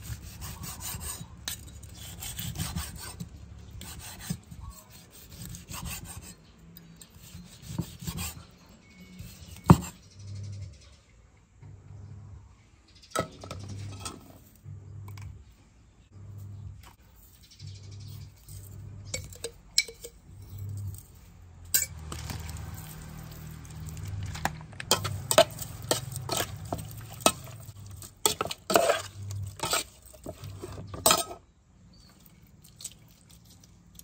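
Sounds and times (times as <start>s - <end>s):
spoon clinking against metal pot: 19.1s - 20.4s, 31.0s - 31.4s.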